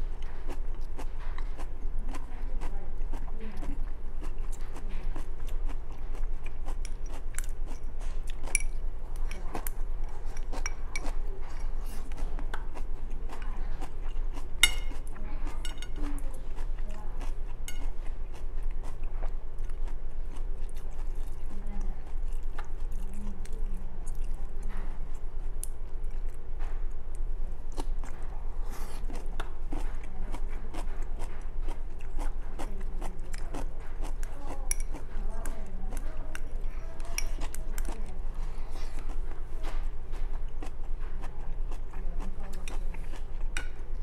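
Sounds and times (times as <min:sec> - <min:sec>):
person chewing food: 0:00.0 - 0:44.0
steady low hum: 0:00.0 - 0:44.0
chopsticks clicking on a bowl: 0:06.7 - 0:11.2, 0:14.6 - 0:15.0, 0:34.1 - 0:35.1.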